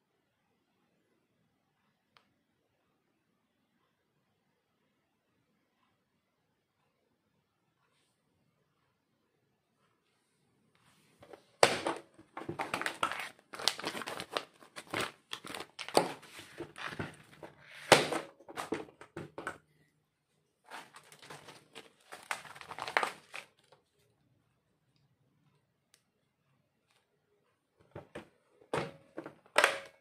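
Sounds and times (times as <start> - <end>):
plastic bag crinkling: 11.3 - 18.8, 20.7 - 23.8.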